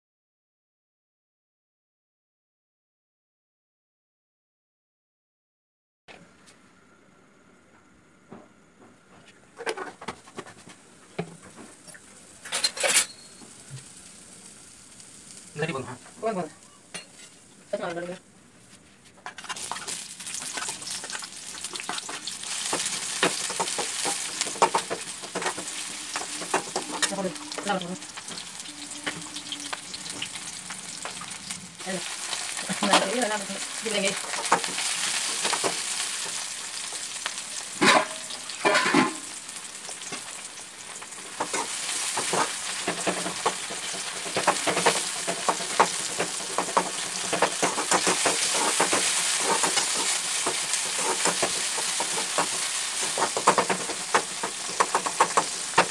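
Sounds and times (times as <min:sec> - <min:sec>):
vegetables sizzling in a pan: 0:09.7 - 0:55.9
spatula scraping metal pan: 0:22.8 - 0:31.3.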